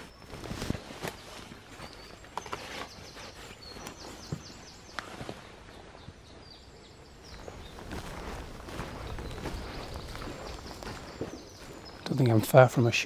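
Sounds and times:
birds singing: 0:00.0 - 0:13.0.

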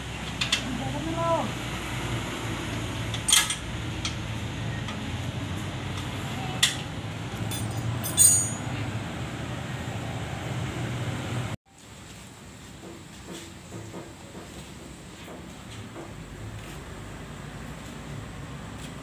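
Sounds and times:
hand tool clinking on metal: 0:07.4 - 0:08.7.

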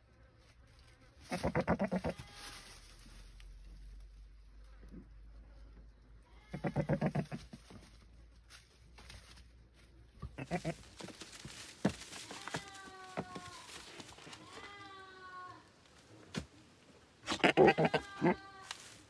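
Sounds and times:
goats bleating: 0:01.3 - 0:02.8, 0:06.3 - 0:07.6, 0:10.4 - 0:11.1, 0:12.1 - 0:15.7, 0:17.2 - 0:19.0.

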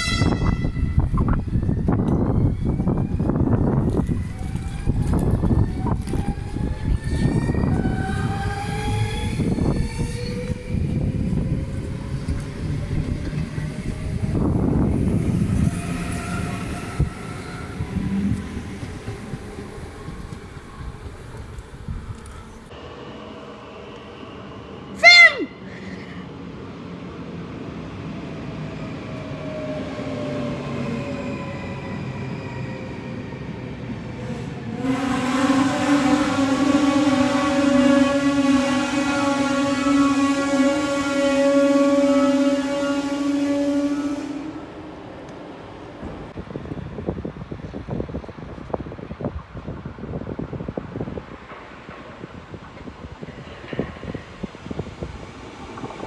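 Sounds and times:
train wheels rumbling on rails: 0:00.0 - 0:24.9, 0:25.8 - 0:56.0.

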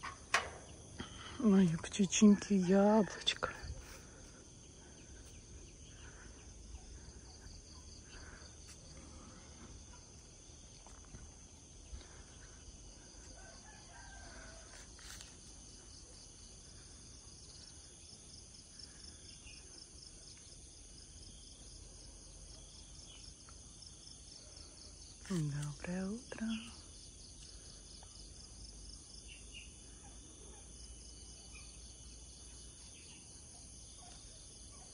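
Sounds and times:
faint roosters crowing: 0:13.0 - 0:15.4.

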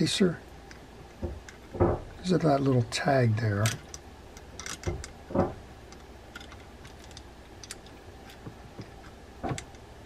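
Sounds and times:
light clicks and taps of parts: 0:00.6 - 0:02.9, 0:03.6 - 0:09.9.

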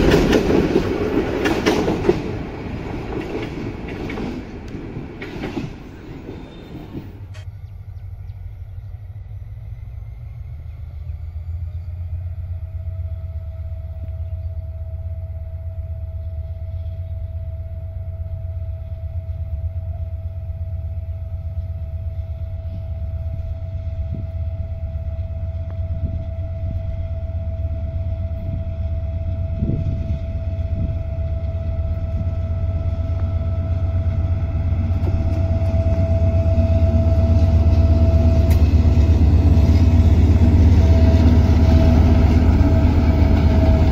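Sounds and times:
diesel locomotive engine rumbling: 0:00.0 - 0:43.9.

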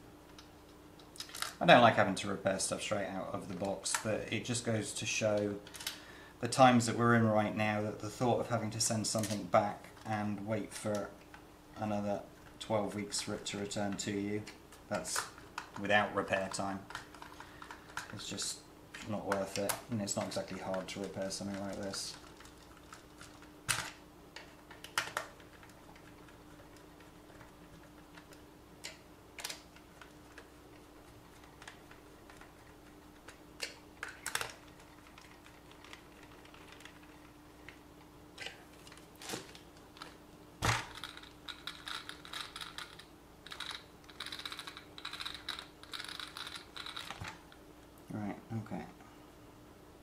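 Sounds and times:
faint steady hum: 0:00.0 - 0:50.0
plastic parts clicking and tapping: 0:14.9 - 0:30.5, 0:31.3 - 0:37.8, 0:38.4 - 0:47.4.

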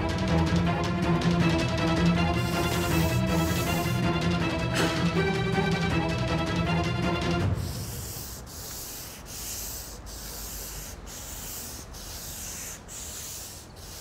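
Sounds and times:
sanding block on wood: 0:02.4 - 0:04.0, 0:07.5 - 0:14.0.

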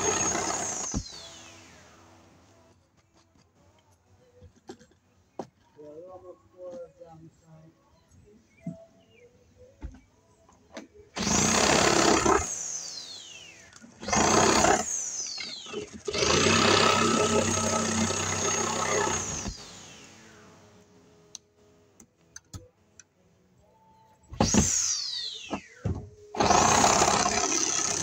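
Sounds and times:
power tool motor whining: 0:00.0 - 0:01.6, 0:11.2 - 0:20.4, 0:24.4 - 0:28.0.

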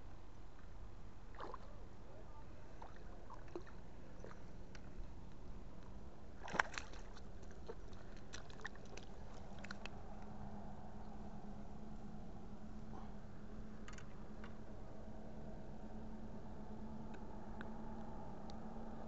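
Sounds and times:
water splashing and sloshing: 0:00.5 - 0:05.2, 0:06.3 - 0:11.2.

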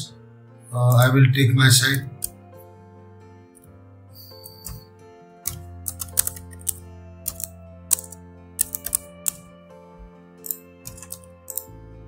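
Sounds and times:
music of held notes: 0:00.0 - 0:12.0
computer keyboard keystrokes: 0:04.3 - 0:09.5, 0:10.4 - 0:11.7.

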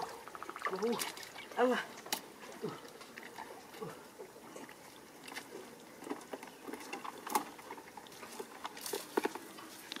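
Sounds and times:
footsteps on wood and grass: 0:05.2 - 0:10.0.

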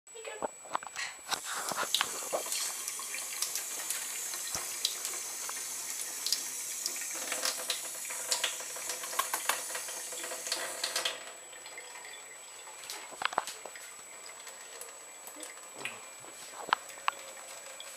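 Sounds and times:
water drips and clicks: 0:01.3 - 0:17.9
tap water splashing into sink: 0:01.7 - 0:12.1.

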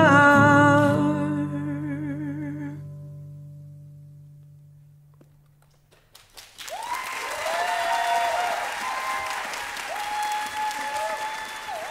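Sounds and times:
audience applause: 0:06.0 - 0:11.9
audience cheering: 0:06.6 - 0:11.9.

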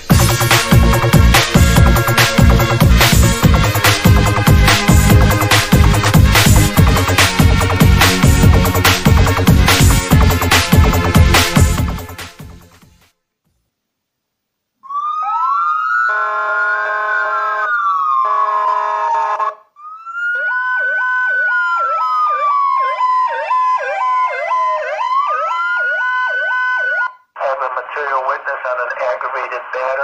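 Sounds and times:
electronic siren wail: 0:00.1 - 0:11.2, 0:14.8 - 0:27.2
siren yelp: 0:00.1 - 0:11.6, 0:14.8 - 0:27.2
horn-like tone: 0:16.0 - 0:19.7.

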